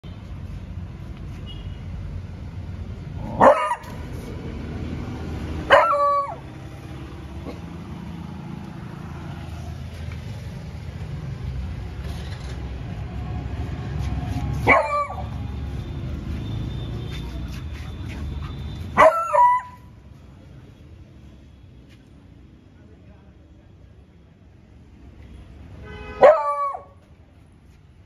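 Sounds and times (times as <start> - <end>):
dog barking: 3.3 - 4.0, 5.6 - 6.4, 14.6 - 15.3, 19.0 - 19.8, 26.2 - 27.0.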